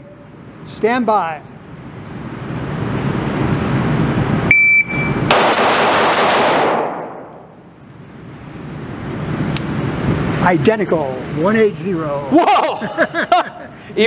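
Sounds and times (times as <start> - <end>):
shot timer beep: 4.5 - 5.3
rapid pistol shots echoing: 5.3 - 7.3.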